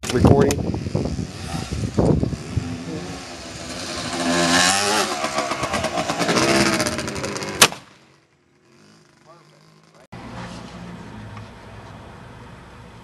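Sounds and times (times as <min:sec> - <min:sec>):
engine revving: 0:00.6 - 0:07.7
rifle shot: 0:07.6 - 0:08.0.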